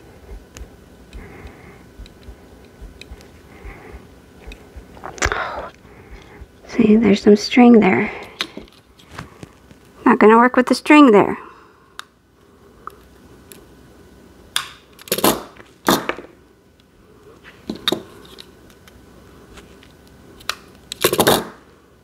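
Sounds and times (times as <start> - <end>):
light handling taps and clicks: 0.5 - 3.4.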